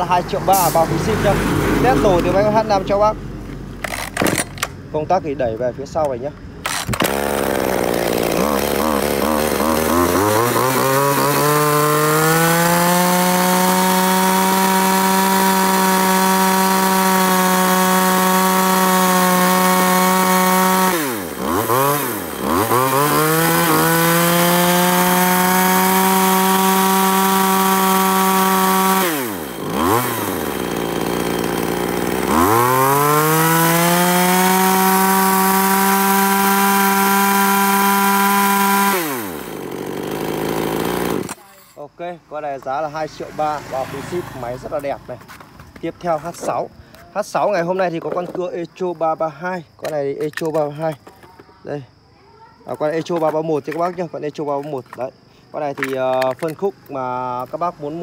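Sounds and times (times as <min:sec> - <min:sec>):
chainsaw revving: 0:00.0 - 0:03.2, 0:03.8 - 0:04.7, 0:06.6 - 0:41.8, 0:42.6 - 0:45.1
chainsaw idling: 0:03.8 - 0:04.6, 0:06.0 - 0:45.2.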